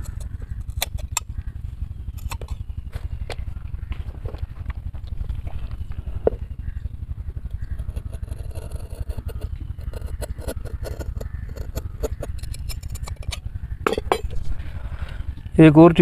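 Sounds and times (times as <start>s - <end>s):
low rumble: 0.0s - 15.7s.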